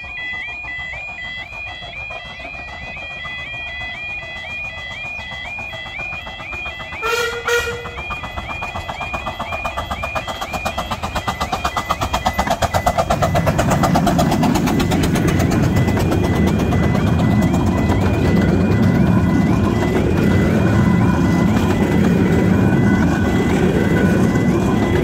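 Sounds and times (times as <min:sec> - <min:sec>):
carriages rumbling: 0:00.0 - 0:25.0
level crossing alarm warbling: 0:00.0 - 0:25.0
steam locomotive exhaust beats: 0:00.0 - 0:25.0
steam locomotive whistle: 0:00.2 - 0:13.7.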